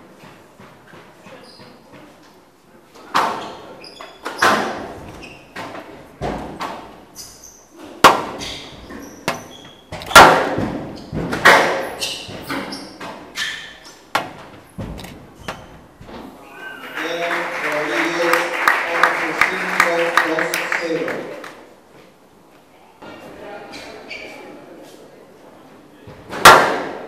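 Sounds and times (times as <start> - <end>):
shoes squeaking on court floor: 0.2 - 2.3, 3.0 - 5.9, 6.5 - 10.2, 10.8 - 16.4, 23.7 - 24.6
ball banging on walls: 8.0 - 13.4, 14.1 - 16.3
squash racket hitting ball: 8.0 - 13.4, 14.1 - 15.8, 26.3 - 27.0.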